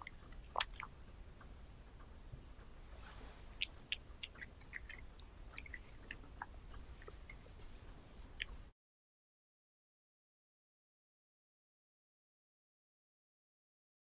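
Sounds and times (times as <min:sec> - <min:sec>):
cat chewing: 0:02.9 - 0:08.6.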